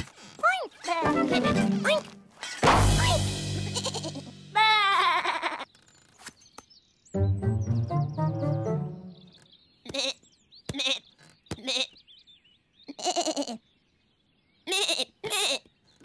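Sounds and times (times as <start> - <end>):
music phrase: 1.0 - 4.7, 7.2 - 9.3
cartoon character bleating: 3.8 - 5.6, 14.7 - 15.6.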